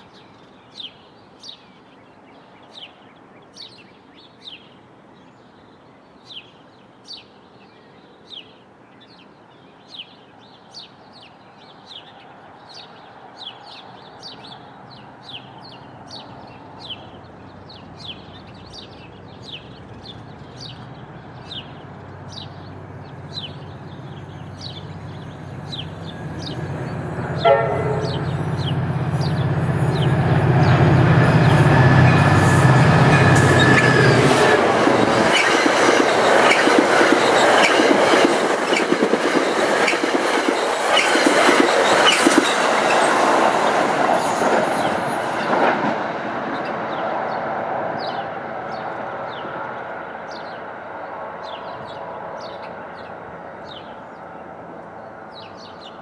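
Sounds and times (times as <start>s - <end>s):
diesel locomotive engine drone: 17.1s - 55.7s
train wheels clattering on rails: 24.6s - 46.9s
train horn blast: 26.4s - 33.7s.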